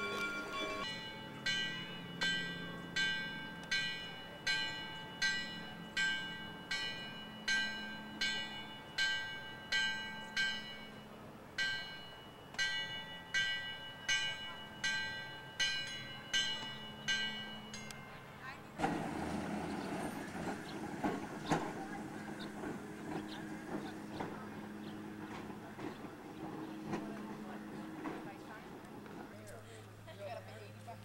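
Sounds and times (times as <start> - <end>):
bell ringing: 0.0 - 18.6.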